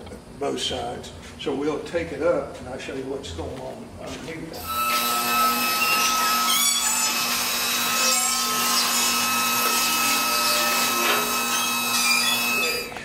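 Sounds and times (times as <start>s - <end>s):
hydraulic pump motor whine: 4.6s - 13.0s.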